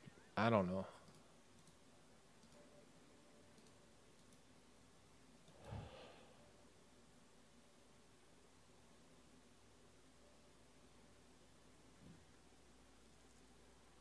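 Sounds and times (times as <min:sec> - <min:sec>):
faint clicks: 0:01.0 - 0:01.8, 0:03.5 - 0:04.5.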